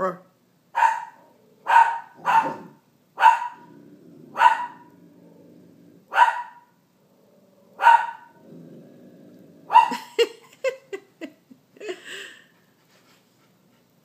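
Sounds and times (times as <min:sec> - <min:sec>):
puppy barking: 0:00.8 - 0:03.7, 0:04.3 - 0:04.9, 0:06.1 - 0:06.8, 0:07.8 - 0:08.4, 0:09.7 - 0:10.1.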